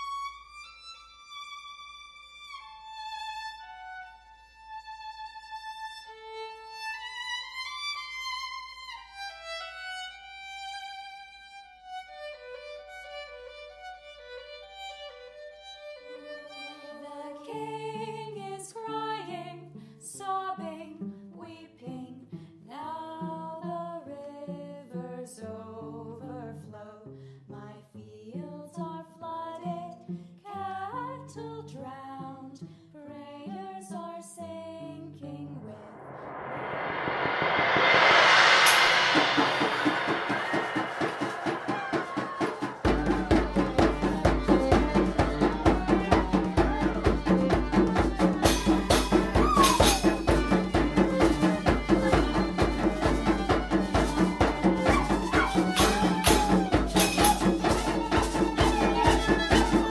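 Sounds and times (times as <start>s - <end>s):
solo violin melody: 0.0s - 19.3s, 42.8s - 59.9s
low string accompaniment: 35.4s - 49.4s, 50.0s - 55.5s.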